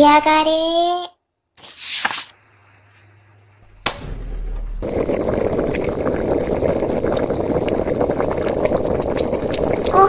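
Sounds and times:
pot bubbling and simmering: 2.3 - 10.0
short low rumble: 3.6 - 7.2.

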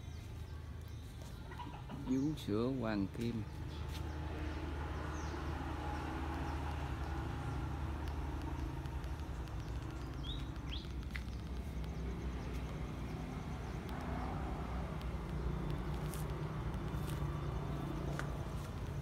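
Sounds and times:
high bird chirps: 6.2 - 19.0.

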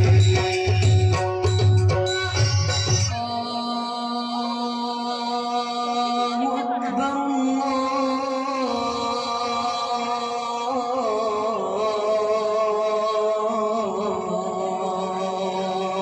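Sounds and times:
child singing through loudspeaker: 3.0 - 10.4, 14.0 - 16.0.

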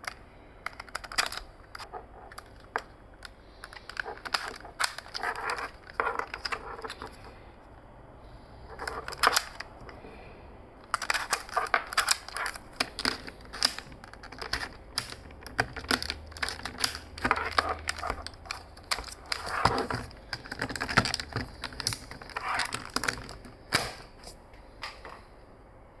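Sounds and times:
plastic and metal parts clicking: 0.0 - 7.4, 8.7 - 10.0, 10.8 - 25.0.

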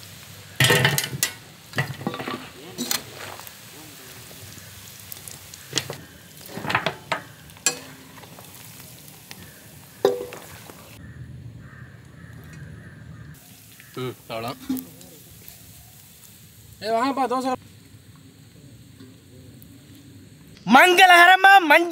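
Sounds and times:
meat sizzling in a pan: 0.0 - 11.0, 11.6 - 20.4
metal ladles scraping and clanking: 0.6 - 3.5, 5.7 - 8.8, 10.0 - 10.9.

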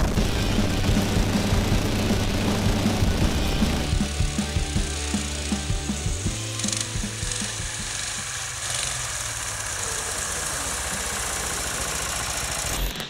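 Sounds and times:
snowmobile engines at full throttle: 0.0 - 12.9.

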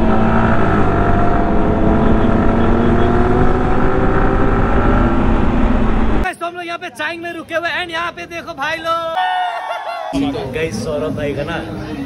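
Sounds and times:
motorcycle engine cruising: 0.0 - 6.2.

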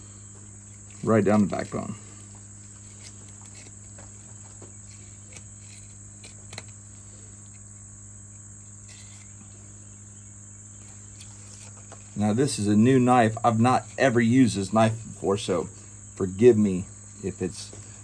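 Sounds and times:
high-pitched insect chorus: 0.0 - 18.0
low steady hum: 0.0 - 18.0.

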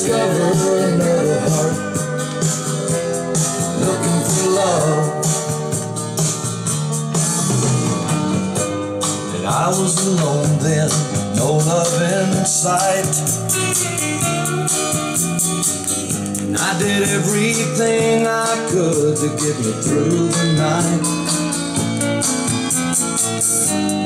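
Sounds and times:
song with singing and guitar: 0.0 - 24.0.

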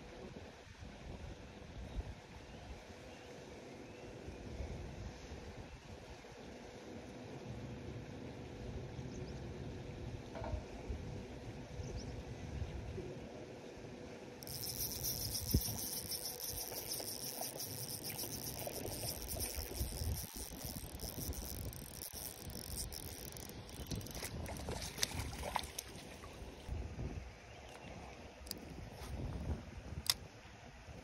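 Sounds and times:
fishing reel whirring: 14.4 - 26.0
water splashes: 23.7 - 26.7.

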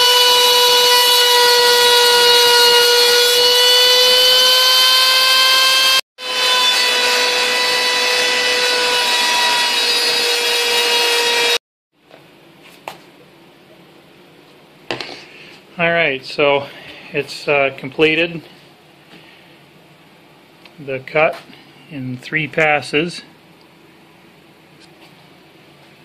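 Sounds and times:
router spindle whining: 0.0 - 11.6.

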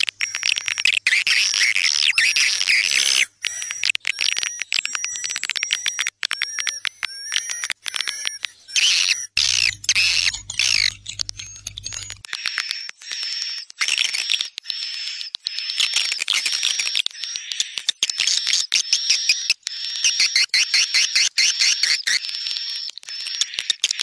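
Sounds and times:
recorded swiftlet chirping: 0.2 - 24.0
rapid clicks: 3.0 - 20.3.

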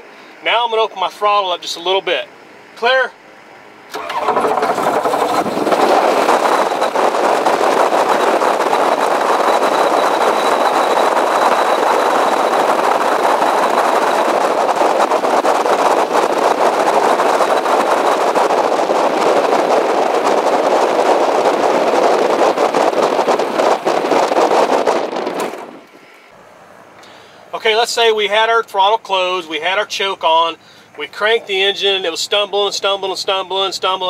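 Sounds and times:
faint high whine: 0.0 - 16.1
aircraft engine and propeller running: 2.5 - 26.1.

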